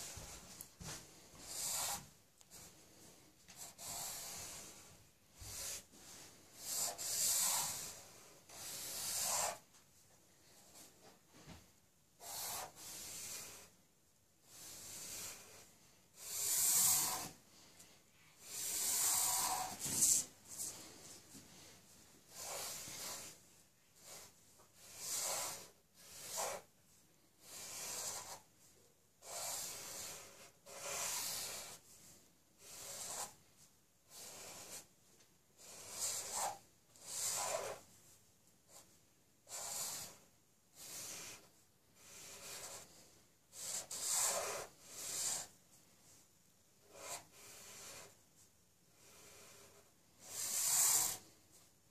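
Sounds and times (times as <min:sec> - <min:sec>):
marker scratching on paper: 0:00.0 - 0:09.7, 0:12.2 - 0:13.7, 0:14.5 - 0:17.4, 0:18.4 - 0:21.0, 0:22.2 - 0:23.4, 0:24.0 - 0:26.7, 0:27.4 - 0:28.6, 0:29.2 - 0:32.0, 0:32.6 - 0:33.4, 0:34.1 - 0:34.9, 0:35.6 - 0:37.9, 0:38.7 - 0:45.6, 0:46.8 - 0:48.2, 0:48.9 - 0:51.5.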